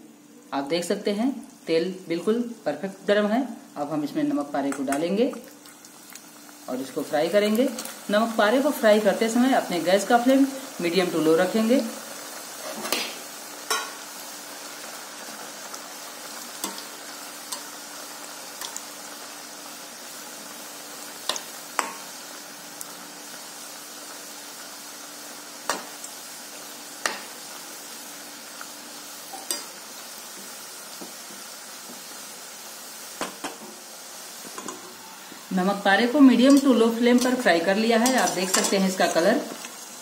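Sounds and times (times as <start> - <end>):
dough deep-frying in oil: 4.4 - 33.6.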